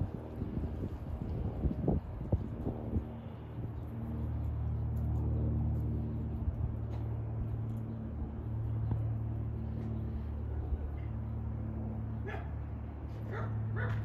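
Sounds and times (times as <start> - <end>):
propeller plane droning overhead: 0.0 - 14.0
dog barking: 12.2 - 12.6, 13.3 - 14.0.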